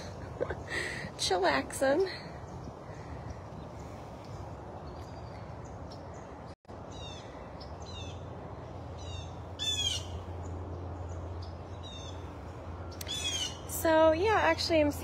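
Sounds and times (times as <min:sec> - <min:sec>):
blue jay calling: 0:06.0 - 0:14.4.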